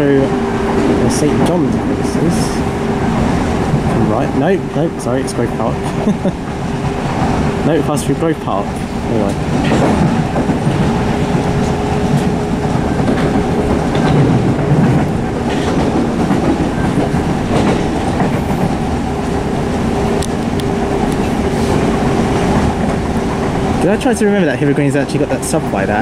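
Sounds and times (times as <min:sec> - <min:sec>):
train wheels rumbling on rail: 0:00.0 - 0:26.0
wheels clicking over rail joints: 0:00.0 - 0:26.0.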